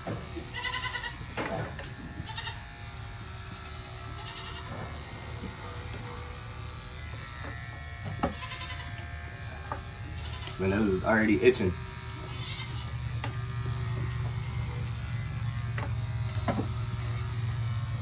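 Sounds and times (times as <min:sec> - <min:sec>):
electric clippers running: 0:00.0 - 0:18.0
goat bleating: 0:00.4 - 0:01.3, 0:02.2 - 0:02.7, 0:04.2 - 0:04.7, 0:08.3 - 0:09.0, 0:10.0 - 0:11.3, 0:12.2 - 0:14.2.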